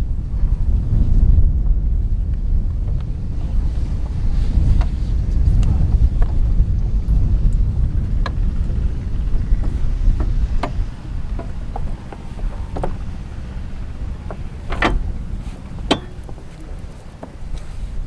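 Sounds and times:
wind rumble on microphone: 0.0s - 18.0s
anchor chain clinking and knocking: 9.1s - 17.5s.

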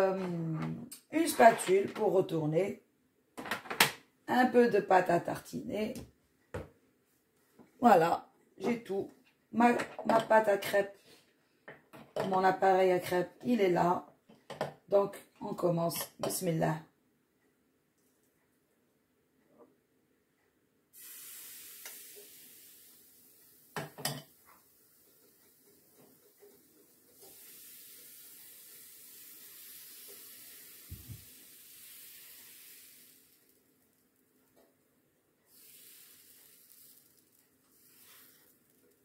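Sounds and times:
batter sizzling on hot plate: 21.0s - 34.4s, 35.5s - 39.0s.

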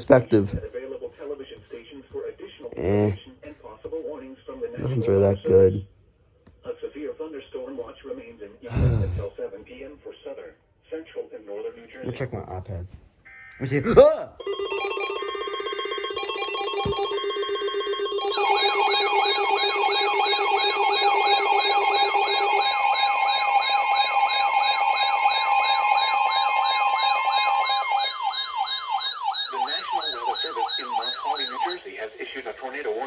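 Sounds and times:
sweeping siren alarm with warble: 14.4s - 31.8s
steady alert tone with beeps: 16.2s - 31.8s.

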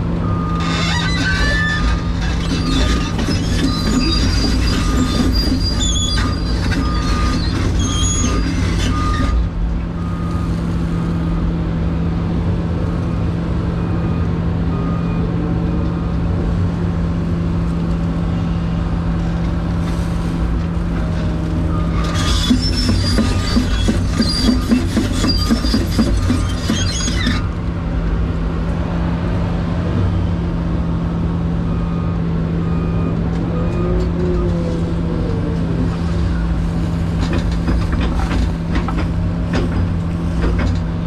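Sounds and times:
excavator engine and hydraulics: 0.0s - 41.0s
metallic squealing and scraping: 0.3s - 9.4s, 21.2s - 27.6s.

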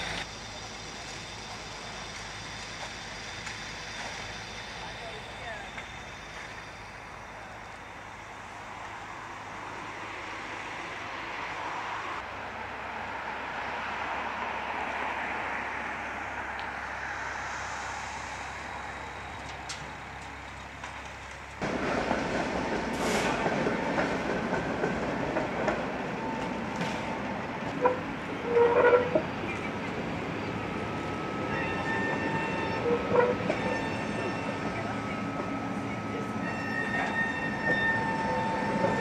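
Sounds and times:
city street noise: 0.0s - 39.0s
tram running on rails: 0.0s - 39.0s
faint wheel squeal: 30.4s - 39.0s.

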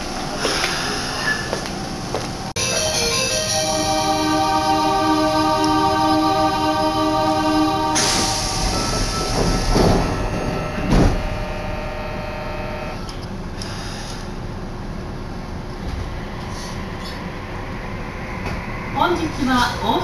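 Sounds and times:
subway train running: 0.0s - 20.0s
background music: 2.6s - 10.1s.

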